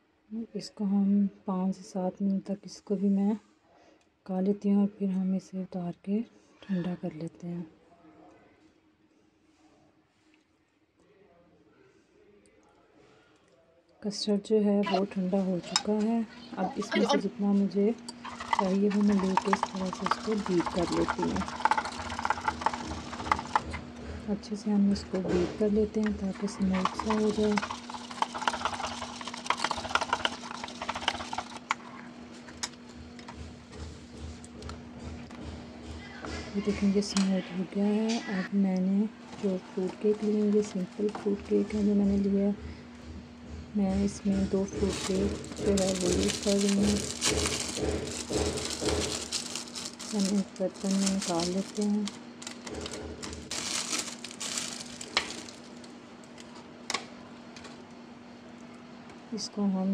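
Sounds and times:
plastic wrapping crinkling: 18.1 - 23.9, 26.0 - 31.8, 44.7 - 56.6.

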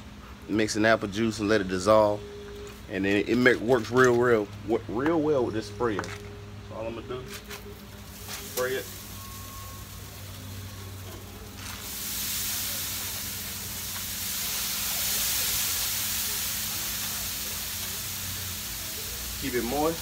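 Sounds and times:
pump sprayer hissing: 8.0 - 20.0.

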